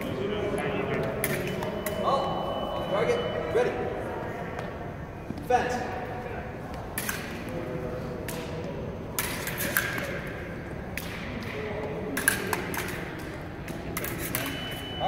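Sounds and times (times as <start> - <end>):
fencing blades clashing: 1.0 - 2.1, 6.7 - 15.0.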